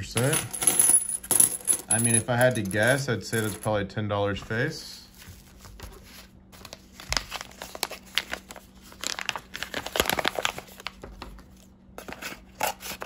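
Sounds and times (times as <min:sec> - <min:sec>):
paper envelope crinkling: 0:05.1 - 0:13.0.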